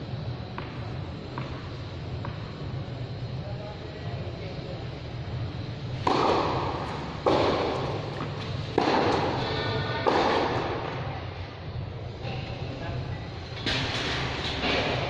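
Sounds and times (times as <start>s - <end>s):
tennis balls struck with ringing thuds: 6.0s - 11.0s.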